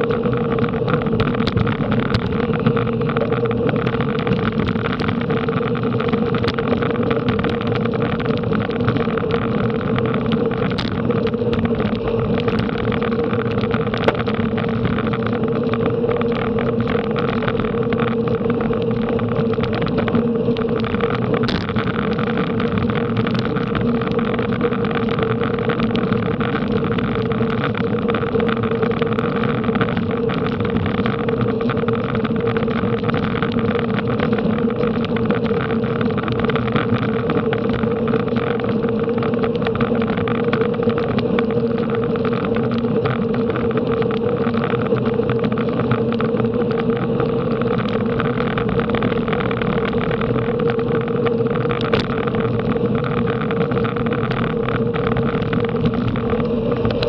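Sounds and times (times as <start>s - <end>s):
bicycle road noise: 0.0s - 57.0s
constant hum: 0.0s - 57.0s
wind rush: 48.9s - 57.0s.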